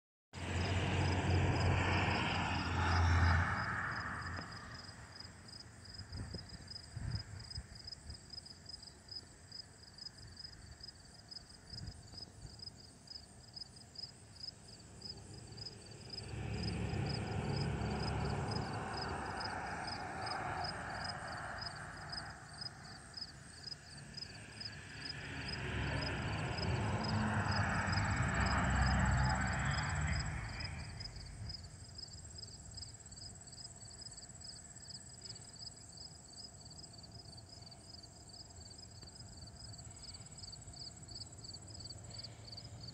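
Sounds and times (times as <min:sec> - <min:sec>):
insects chirping: 0:02.9 - 0:42.9
distant rumble: 0:24.3 - 0:32.0.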